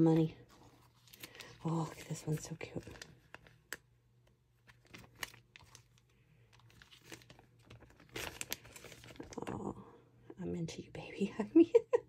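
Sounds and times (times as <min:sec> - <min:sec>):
plastic bags crinkling: 0:00.2 - 0:03.9, 0:04.6 - 0:09.7.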